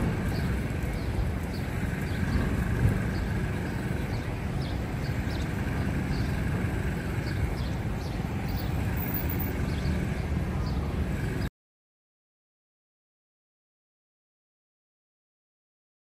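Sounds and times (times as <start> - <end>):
traffic rumble: 0.0 - 11.5.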